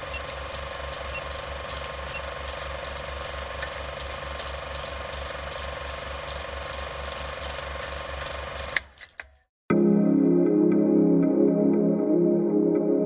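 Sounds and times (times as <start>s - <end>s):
film projector clatter: 0.0s - 9.4s.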